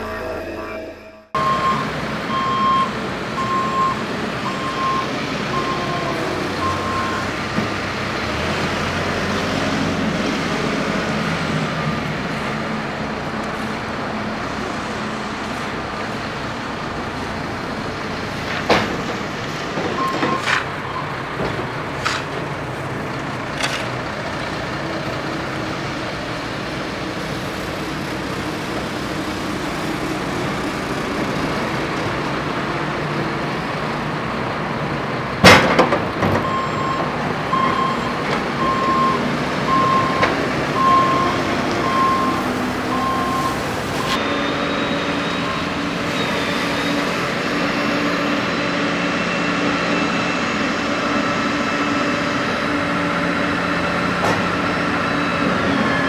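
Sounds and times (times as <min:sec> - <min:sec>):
reversing beeps: 0:00.0 - 0:07.3, 0:20.0 - 0:21.2, 0:36.4 - 0:47.0
diesel engine running: 0:00.0 - 0:56.0.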